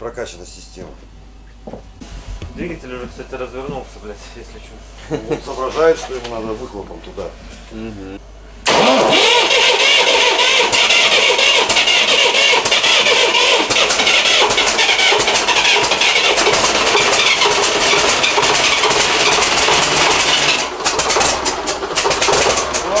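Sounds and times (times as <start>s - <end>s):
diesel engine clattering: 8.7s - 23.0s.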